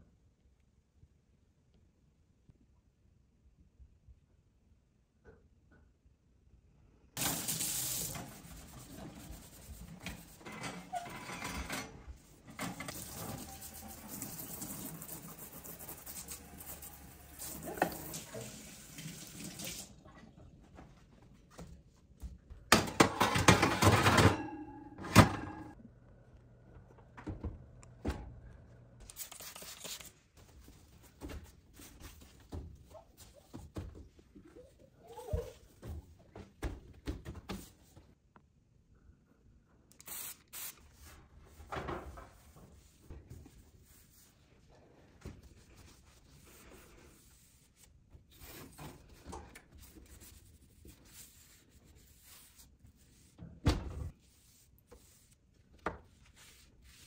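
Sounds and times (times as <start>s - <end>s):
water running in sink: 7.2s - 8.8s, 12.8s - 20.1s
dishes clattering: 22.8s - 25.8s.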